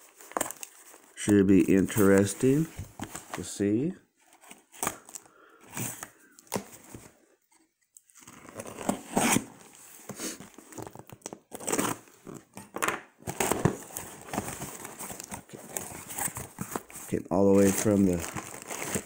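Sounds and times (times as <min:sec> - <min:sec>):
packing tape tearing: 0:10.6 - 0:17.0, 0:17.6 - 0:19.0.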